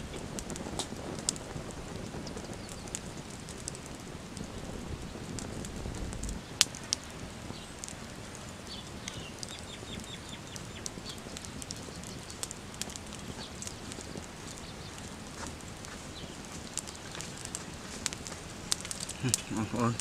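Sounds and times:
fire crackling and popping: 0:00.0 - 0:20.0
bird chirping: 0:08.6 - 0:12.4.

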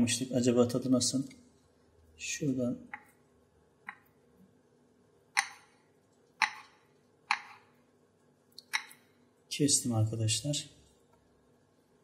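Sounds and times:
tapping on cutting board: 0:05.4 - 0:05.7, 0:06.4 - 0:07.6.

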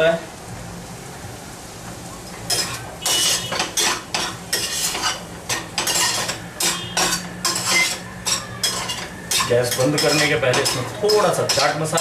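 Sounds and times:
spatula scraping frying pan: 0:02.5 - 0:12.0.

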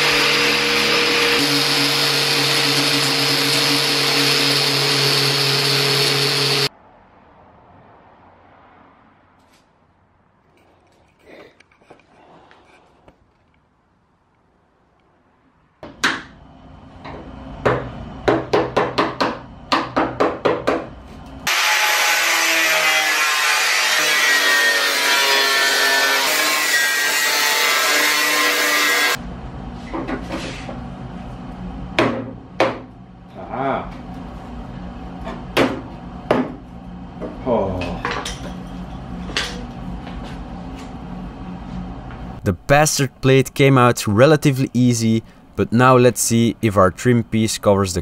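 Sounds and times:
angle grinder cutting steel: 0:00.0 - 0:06.7, 0:21.5 - 0:29.2.

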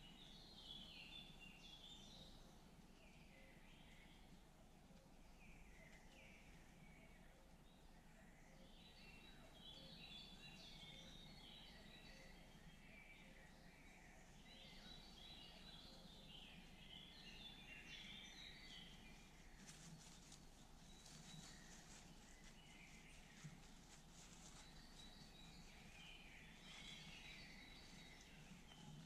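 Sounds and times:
low steady hum: 0:00.0 - 0:29.0
birds chirping and singing: 0:05.2 - 0:29.0
faint soft crackles: 0:18.7 - 0:29.0.

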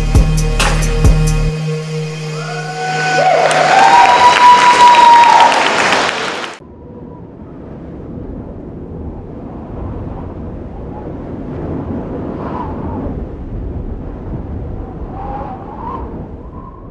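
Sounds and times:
low wind-like rumbling: 0:06.6 - 0:16.9.

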